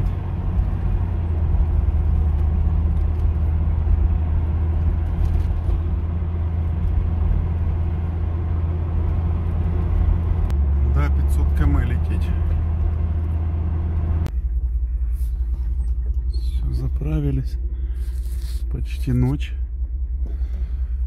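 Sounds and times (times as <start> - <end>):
car engine hum: 0.0 - 21.0
tyre and road noise: 0.0 - 21.0.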